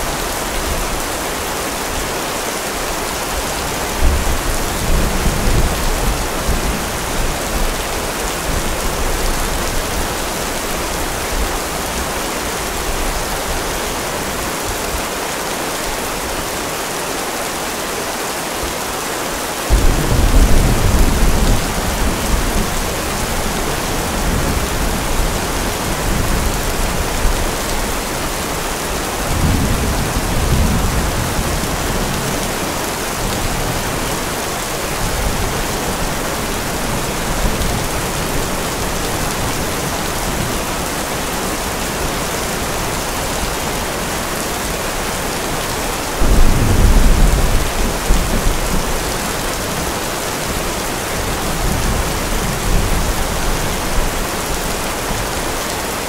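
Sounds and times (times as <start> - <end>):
heavy rain hissing: 0.0 - 56.0
thunder rumbling: 19.7 - 34.4, 46.2 - 50.0.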